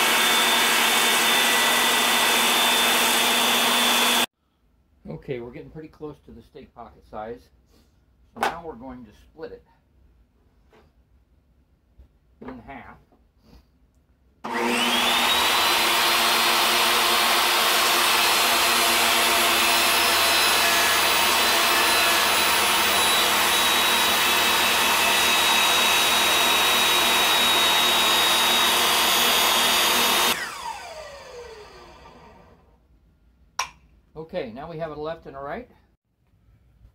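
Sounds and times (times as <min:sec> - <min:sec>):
table saw whining: 0:00.0 - 0:04.3, 0:14.4 - 0:32.7.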